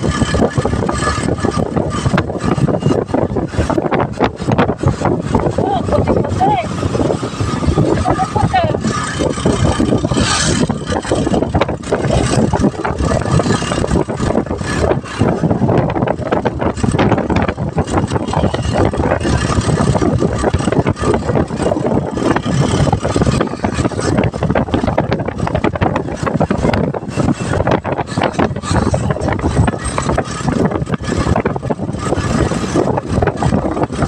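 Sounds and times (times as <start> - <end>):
small vehicle engine running: 0.0 - 34.0
wind buffeting microphone: 0.0 - 34.0.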